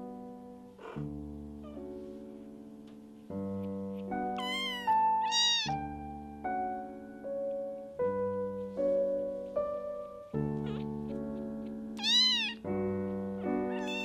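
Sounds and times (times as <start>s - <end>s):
soft solo piano music: 0.0s - 14.0s
kitten mewing: 4.4s - 5.8s, 12.0s - 12.6s, 13.6s - 14.0s.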